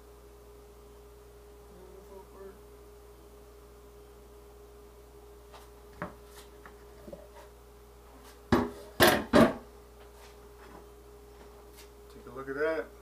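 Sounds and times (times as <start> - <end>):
loud knocks in metal sink: 8.5 - 9.6.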